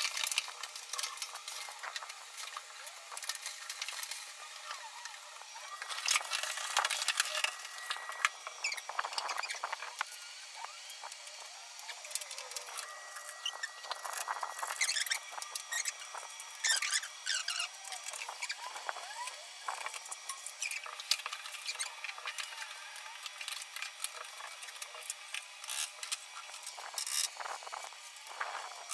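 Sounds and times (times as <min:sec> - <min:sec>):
squeaky chirps: 0:08.0 - 0:09.9, 0:13.2 - 0:19.3.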